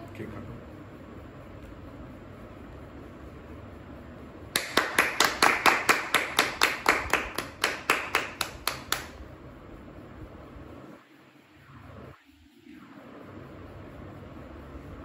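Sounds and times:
hand clapping in rhythm: 4.5s - 9.2s.

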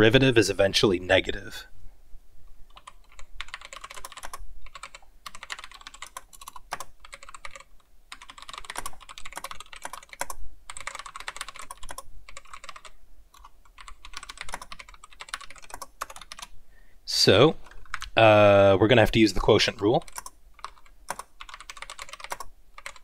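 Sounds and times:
typing on computer keyboard: 2.7s - 16.5s, 20.0s - 23.0s.

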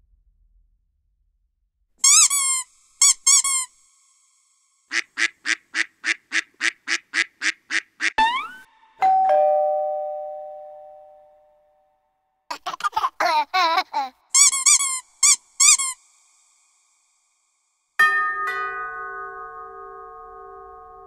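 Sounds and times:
high wavering squeaks: 2.0s - 3.8s, 8.2s - 9.0s
two-tone doorbell chime: 9.0s - 11.5s, 18.0s - 21.0s.

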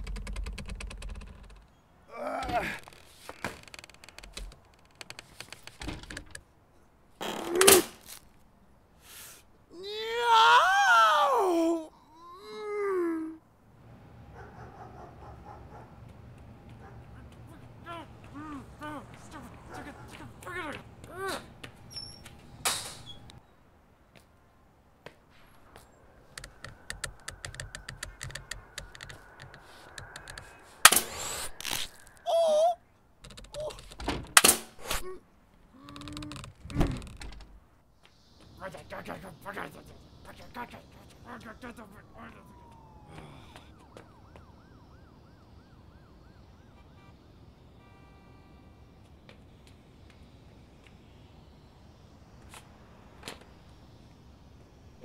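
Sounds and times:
small clicks and knocks: 0.0s - 1.8s, 2.9s - 6.5s, 26.2s - 31.0s
fast light sharp clicks: 26.2s - 31.0s
staple gun firing: 34.4s - 34.7s.

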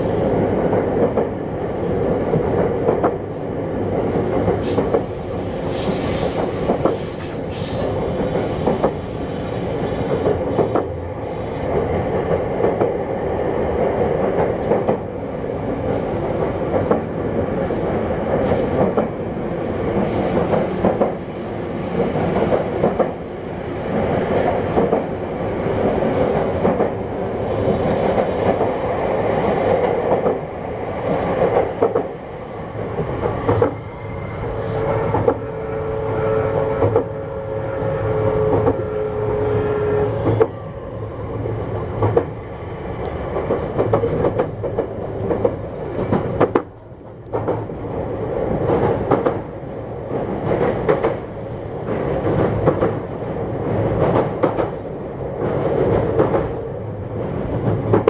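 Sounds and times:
wheels rumbling on rail: 0.0s - 58.0s
rail-joint clicks: 4.0s - 13.0s, 25.8s - 27.0s, 34.4s - 35.5s, 42.0s - 42.3s, 43.4s - 47.7s, 48.6s - 49.4s, 50.1s - 51.2s, 54.0s - 56.6s
high wheel squeals: 4.4s - 10.1s.

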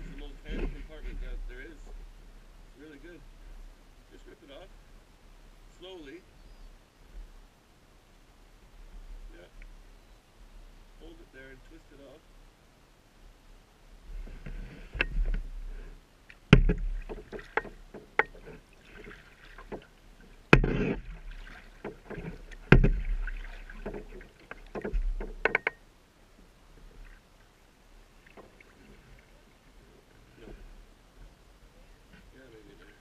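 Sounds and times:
water splashing and dripping: 16.3s - 25.8s
paddle knocking plastic hull: 16.5s - 25.8s.

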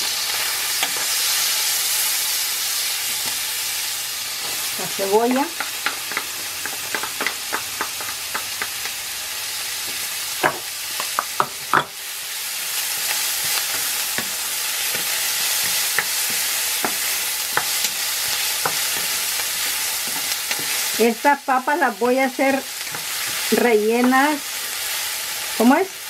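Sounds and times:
onion sizzling in a pan: 0.0s - 26.0s
wooden spoon knocking on pan: 5.5s - 9.0s, 10.4s - 11.9s.

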